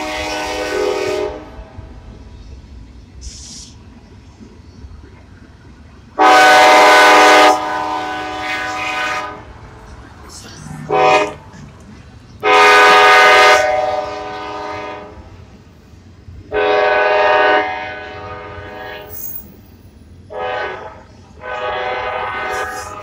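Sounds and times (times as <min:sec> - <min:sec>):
locomotive air horn blasts: 0:00.0 - 0:01.8, 0:06.2 - 0:09.5, 0:10.9 - 0:11.4, 0:12.4 - 0:15.3, 0:16.5 - 0:19.2, 0:20.3 - 0:23.0
train rumble: 0:00.0 - 0:23.0.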